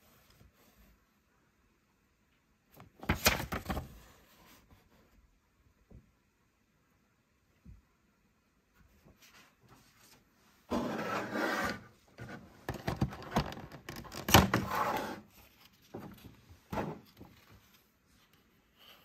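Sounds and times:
plastic scraping on plastic: 10.7 - 17.5
plastic crackling and rubbing: 12.2 - 14.7.

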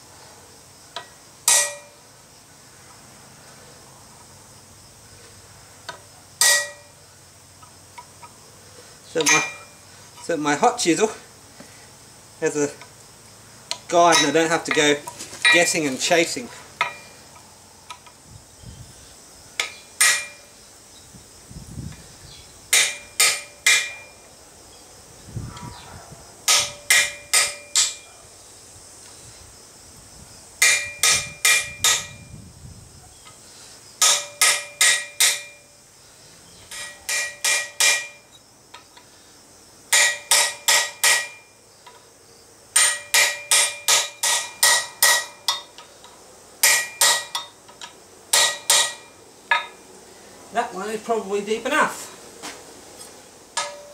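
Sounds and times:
hammer striking chisel on metal: 1.0 - 2.0, 5.9 - 6.9, 9.2 - 9.8, 14.1 - 14.8, 16.8 - 17.1, 19.6 - 20.5, 22.7 - 24.2, 26.5 - 28.1, 30.6 - 32.2, 34.0 - 35.6, 36.7 - 38.3, 39.9 - 41.5, 42.8 - 45.8, 46.6 - 49.8, 53.6 - 53.9.

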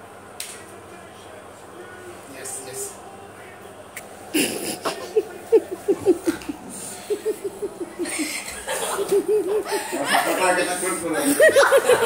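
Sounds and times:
person laughing hard: 4.4 - 10.5.

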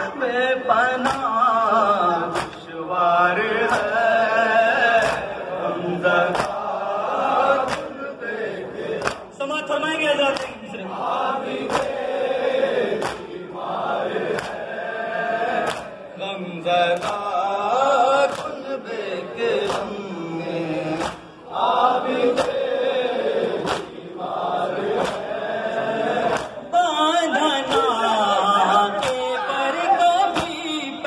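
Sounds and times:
men chanting a lament: 0.0 - 31.0
hands slapping chests: 1.0 - 1.3, 2.3 - 2.6, 3.6 - 4.0, 6.2 - 6.7, 7.6 - 8.0, 9.0 - 9.3, 10.3 - 10.6, 11.6 - 12.1, 12.9 - 13.4, 14.2 - 14.7, 15.5 - 16.0, 16.9 - 17.3, 18.2 - 18.6, 19.5 - 20.0, 21.0 - 21.4, 22.2 - 22.7, 23.5 - 24.0, 24.9 - 25.3, 26.2 - 26.6, 30.3 - 30.7.

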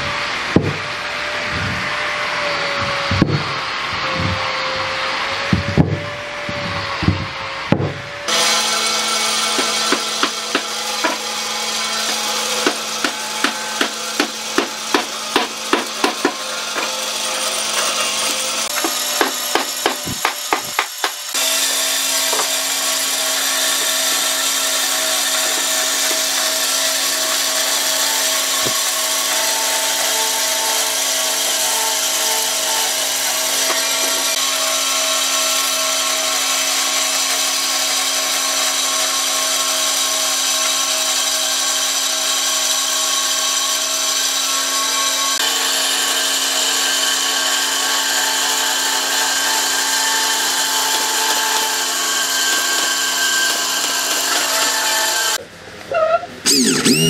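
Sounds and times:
bandsaw cutting wood: 0.0 - 55.4, 56.4 - 57.0.

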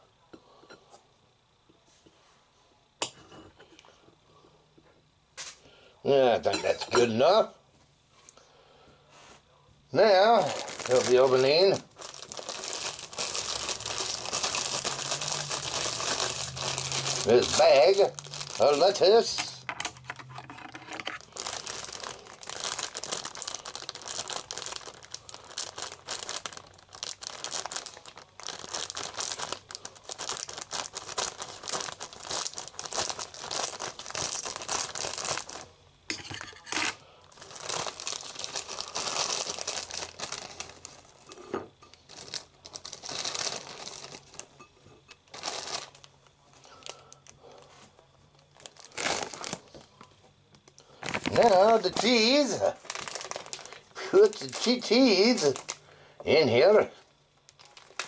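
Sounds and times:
plastic bag crinkling: 10.0 - 35.7, 36.6 - 47.7, 48.3 - 50.1, 50.7 - 55.8, 57.4 - 58.0.

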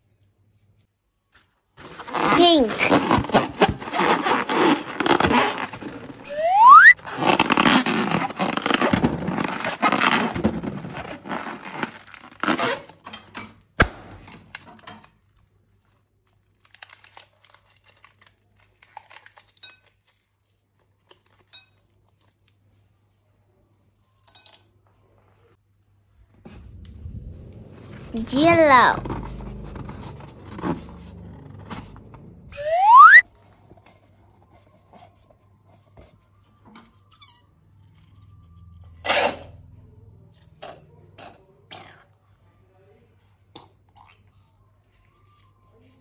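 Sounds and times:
rubber squeak rising in pitch: 2.1 - 8.9, 32.5 - 33.2.

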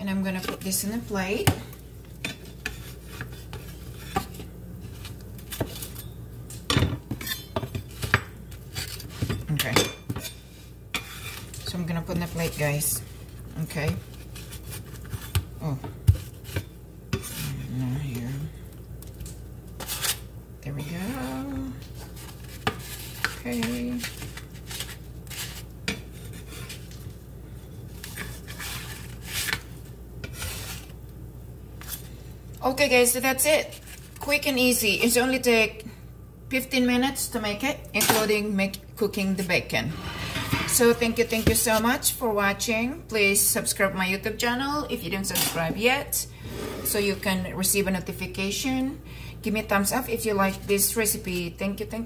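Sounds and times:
utensils scraping on cutting board: 2.2 - 6.2, 7.1 - 9.4, 10.1 - 11.6, 19.8 - 21.4, 22.0 - 27.0, 28.0 - 30.9, 39.8 - 41.8, 46.4 - 47.2.

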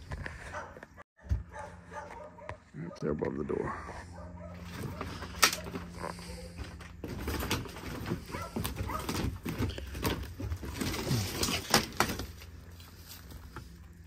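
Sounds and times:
knocks and clatter of rummaging junk: 4.6 - 14.0.

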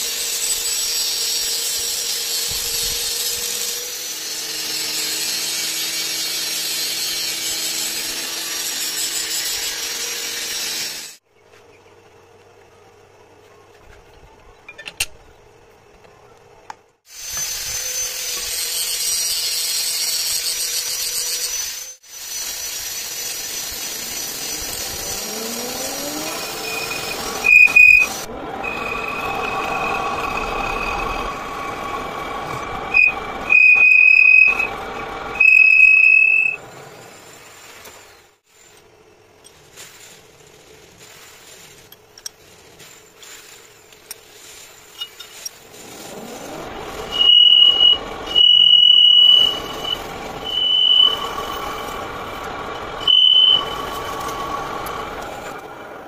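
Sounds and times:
high squeal of cutting tool: 0.0 - 11.2, 17.1 - 36.6, 45.0 - 55.6
metal lathe running: 22.6 - 36.6, 46.2 - 55.7.

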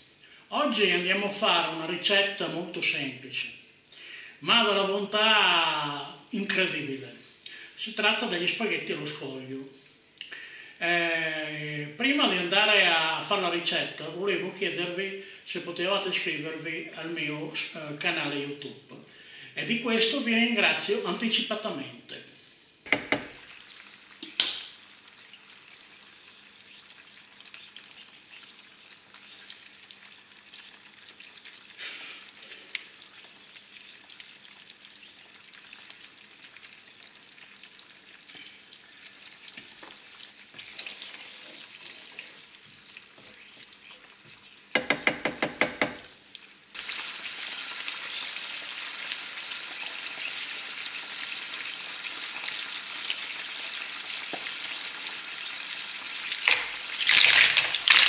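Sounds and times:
sauce sizzling in a frying pan: 22.6 - 58.0
sharp knock: 22.9 - 23.3, 44.8 - 46.0.

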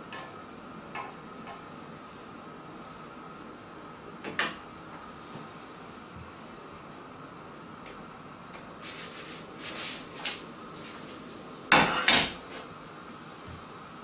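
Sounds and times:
scraping in a frying pan: 8.7 - 12.7.

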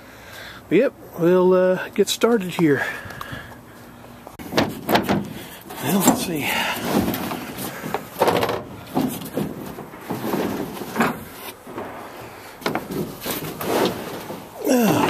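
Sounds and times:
plastic liner knocking and scraping: 6.8 - 12.0, 12.6 - 14.5.

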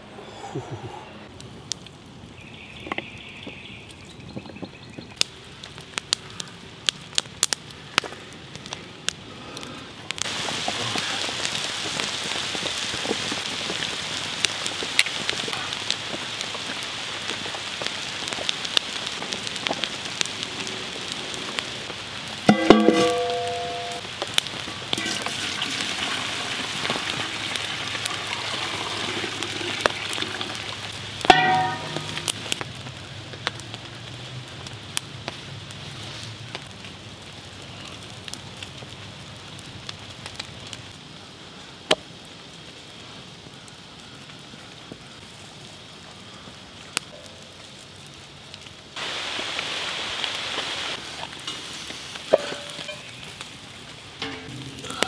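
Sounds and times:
campfire crackling and popping: 1.3 - 55.0
meat sizzling in a pot: 22.4 - 32.6, 49.0 - 55.0
metal cookpot clank: 22.5 - 24.0, 31.3 - 32.3, 52.3 - 53.1, 54.2 - 55.0.

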